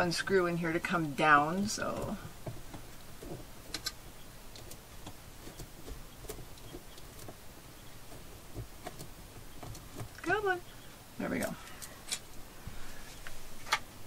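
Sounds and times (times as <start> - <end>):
small plastic clicks: 3.7 - 7.4.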